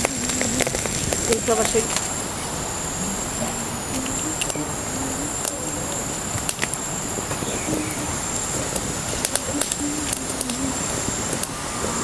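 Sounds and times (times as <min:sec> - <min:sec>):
leaves and stems snapping: 0:00.0 - 0:02.2, 0:08.7 - 0:11.6
insects chirring: 0:00.0 - 0:12.0.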